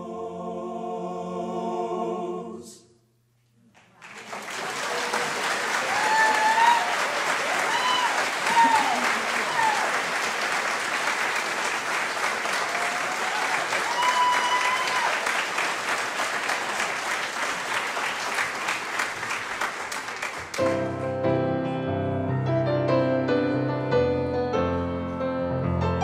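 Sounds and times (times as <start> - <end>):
audience applauding: 3.7 - 20.9
audience cheering: 4.0 - 20.7
piano playing chords: 20.6 - 26.0.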